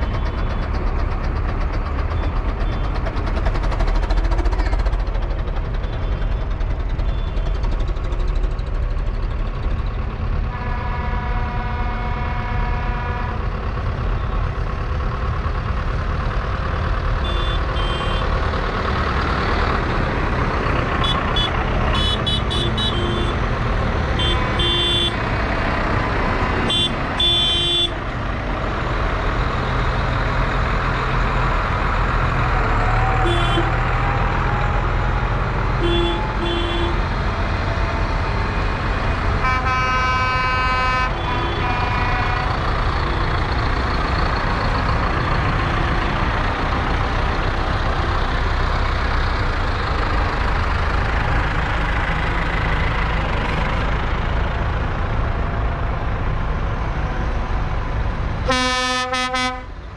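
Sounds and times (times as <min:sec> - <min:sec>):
tractor engines running: 0:00.0 - 0:59.9
short horn toots: 0:58.5 - 0:59.7.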